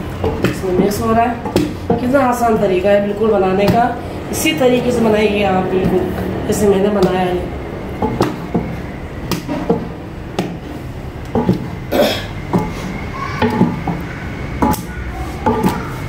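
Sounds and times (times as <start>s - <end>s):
wooden paddle knocking against pot: 0.0s - 2.7s, 8.0s - 11.8s, 12.4s - 16.0s
thick mixture being stirred: 0.0s - 16.0s.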